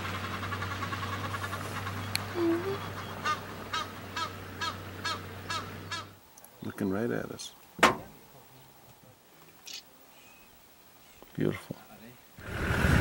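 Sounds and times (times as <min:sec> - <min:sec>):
bird honking calls: 0:00.0 - 0:06.2.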